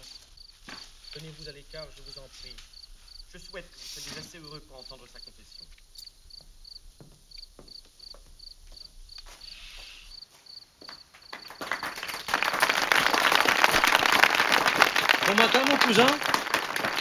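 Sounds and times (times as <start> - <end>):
crickets chirping: 0.0 - 17.0
audience applauding: 10.8 - 17.0.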